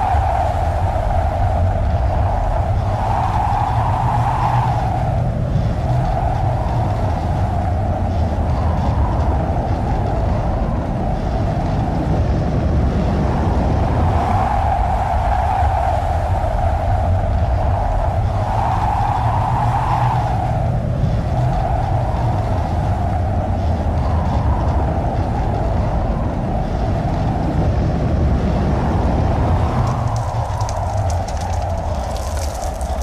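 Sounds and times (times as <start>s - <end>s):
tornado winds roaring: 0.0s - 33.0s
patter of clicks: 29.8s - 33.0s.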